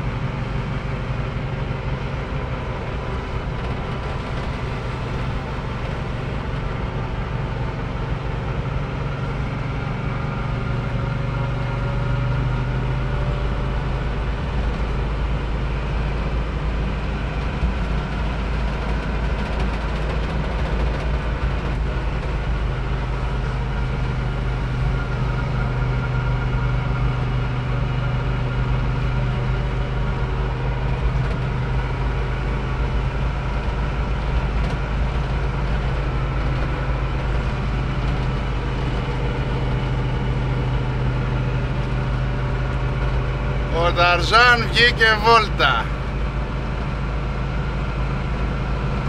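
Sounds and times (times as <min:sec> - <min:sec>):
engine droning while driving: 0:00.0 - 0:49.0
road noise: 0:00.0 - 0:49.0.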